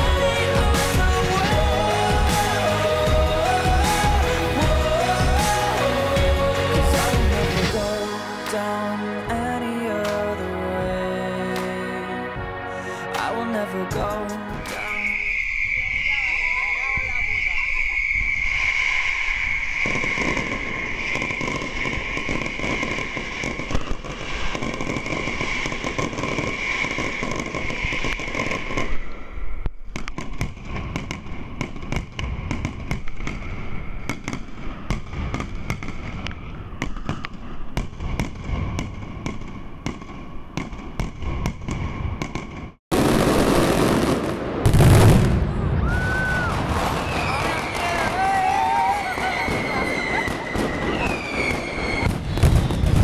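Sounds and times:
steady high whistling tone: 0:14.6 - 0:24.5, 0:25.2 - 0:29.8, 0:45.8 - 0:52.9
firecrackers banging and crackling: 0:14.6 - 0:53.0
heavy boom: 0:42.9 - 0:48.3, 0:49.5 - 0:53.0
crowd voices: 0:45.6 - 0:51.4.

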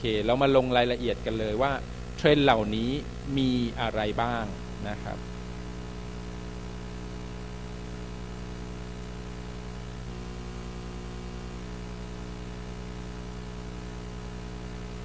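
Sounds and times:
electrical hum with hiss: 0:00.0 - 0:15.0.

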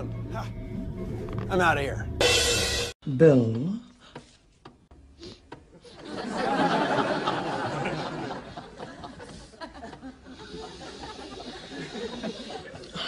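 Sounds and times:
laughter: 0:05.7 - 0:13.0.

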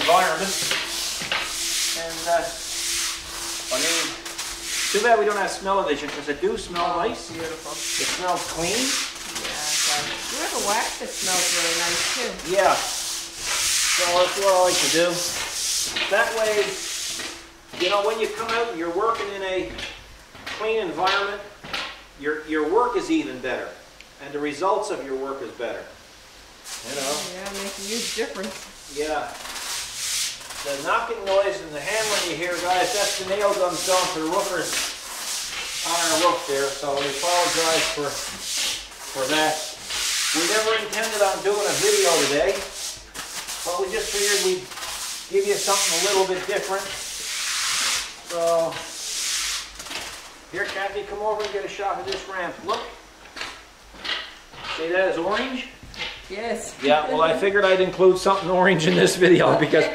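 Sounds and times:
wavering pitched sound: 0:00.0 - 0:17.7
push broom scrubbing wet concrete: 0:00.0 - 0:22.0, 0:26.7 - 0:59.9.

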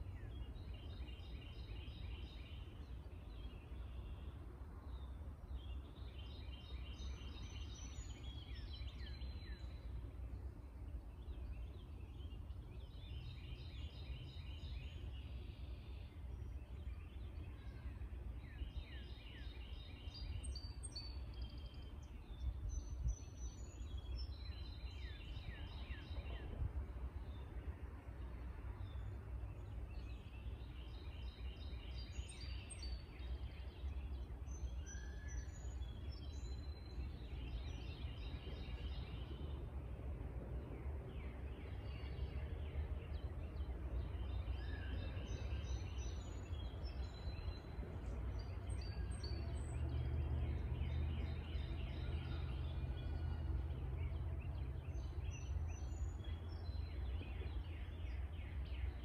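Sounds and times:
songbirds trilling and chirping: 0:00.0 - 0:59.0
low outdoor rumble: 0:19.9 - 0:59.0.

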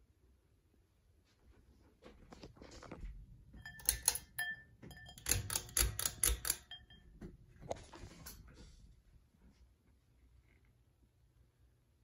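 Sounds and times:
ceiling fan rattling and clicking: 0:03.5 - 0:07.1.

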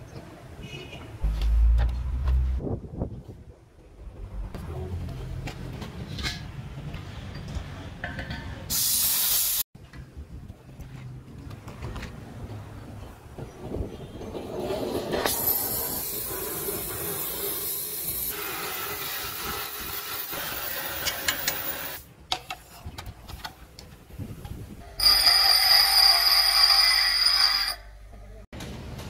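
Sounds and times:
cutting torch hissing: 0:15.3 - 0:22.0
bench grinder whining: 0:25.0 - 0:27.8.

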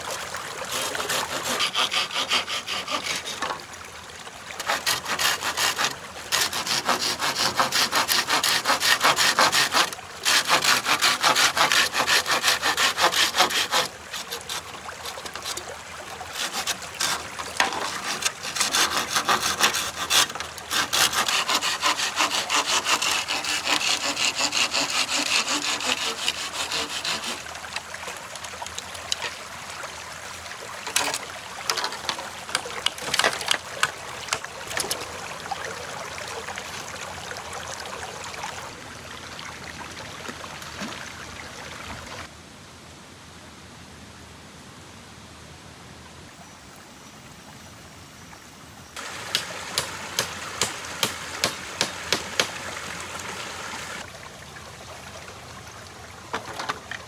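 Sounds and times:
hand saw cutting wood: 0:00.0 - 0:03.6, 0:04.6 - 0:15.7, 0:16.3 - 0:27.5, 0:30.8 - 0:35.1, 0:49.0 - 0:52.6.

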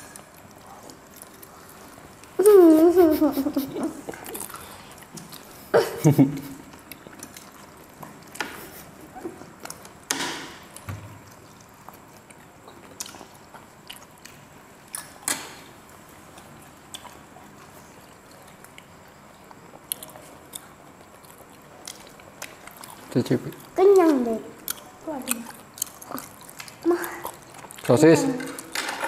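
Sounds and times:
chewing and mouth sounds: 0:04.0 - 0:05.6, 0:10.7 - 0:15.2, 0:16.3 - 0:27.9.

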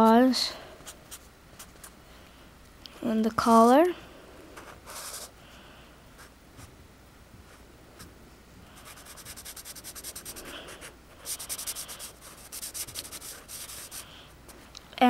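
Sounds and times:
marker scratching on paper: 0:04.6 - 0:05.3, 0:08.8 - 0:14.1.

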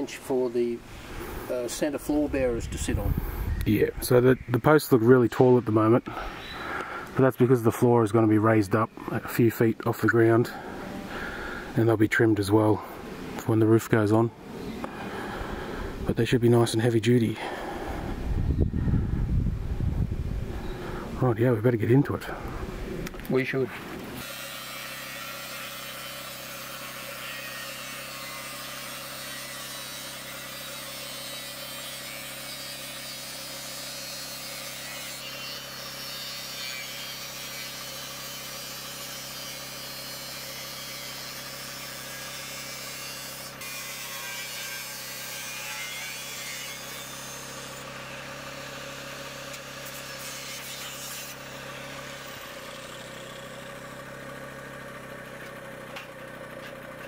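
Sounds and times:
angle grinder cutting steel: 0:23.3 - 0:54.2.

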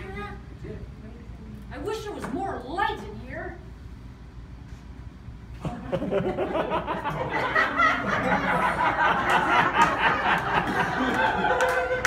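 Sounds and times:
audience laughing and chattering: 0:05.6 - 0:12.0.

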